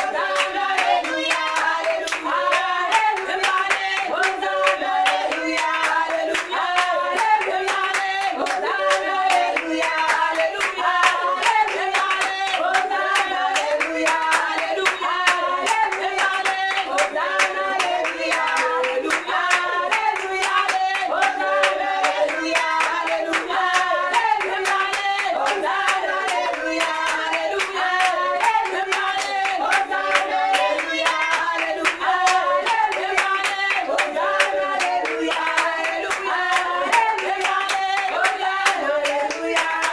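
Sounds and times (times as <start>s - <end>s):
congregation singing a worship song: 0.0s - 39.9s
rhythmic hand clapping: 0.0s - 39.9s.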